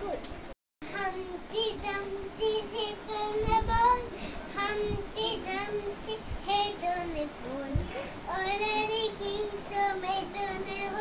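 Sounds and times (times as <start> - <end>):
child singing: 0.8 - 11.0.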